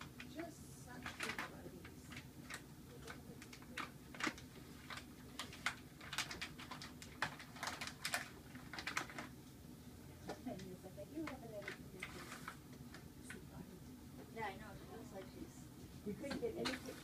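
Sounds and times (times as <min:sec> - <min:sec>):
plastic bag crinkling: 0:01.0 - 0:09.4.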